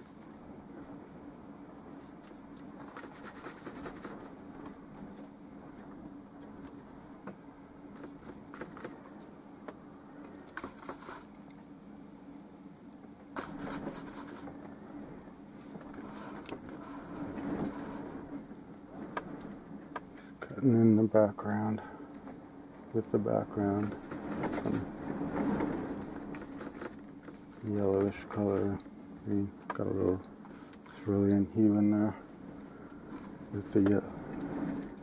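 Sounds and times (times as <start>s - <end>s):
steady low hum: 0.0s - 35.0s
paintbrush scratchy strokes: 1.9s - 4.2s, 10.6s - 11.4s, 13.4s - 14.5s, 16.0s - 18.2s, 23.9s - 24.9s.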